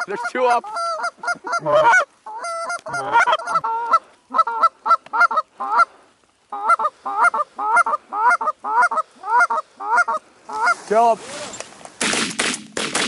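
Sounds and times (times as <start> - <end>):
goose call clucks and honks: 0.0 - 5.9, 6.5 - 11.0.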